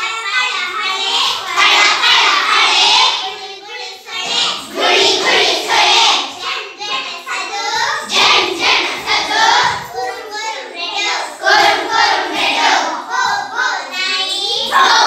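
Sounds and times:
young children singing: 0.0s - 15.0s.

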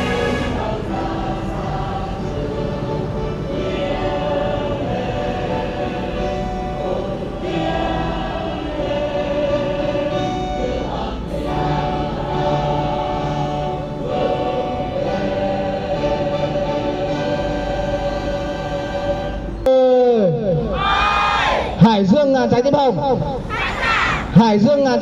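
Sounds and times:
women singing in chorus: 0.0s - 19.7s.

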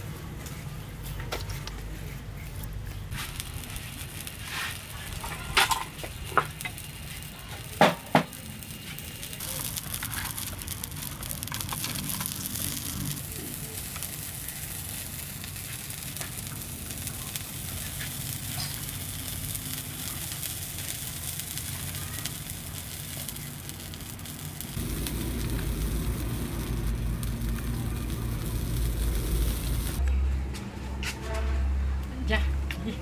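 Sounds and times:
cooking fire crackling: 0.0s - 30.1s
low rumble: 24.6s - 30.4s.

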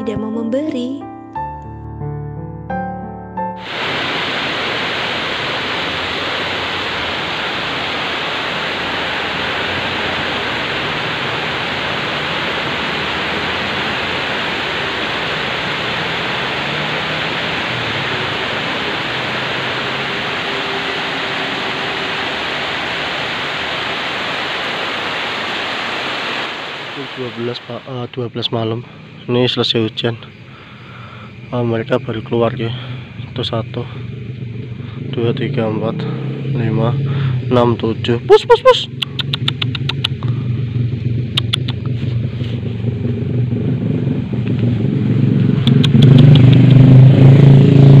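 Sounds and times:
heavy rain pouring: 3.6s - 28.1s, 42.9s - 48.0s
faint passing vehicle engine: 3.6s - 38.9s, 39.8s - 48.0s.

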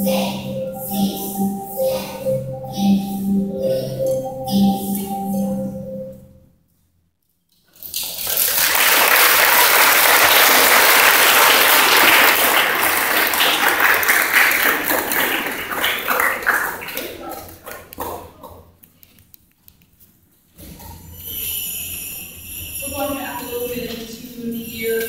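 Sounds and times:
school song singing: 0.0s - 6.4s, 10.0s - 17.3s, 21.2s - 25.0s
audience applause: 7.8s - 17.9s.

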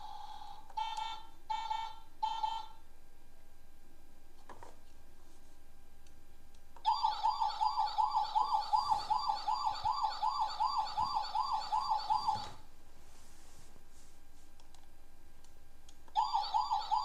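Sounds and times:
toy siren wailing: 6.9s - 12.5s.

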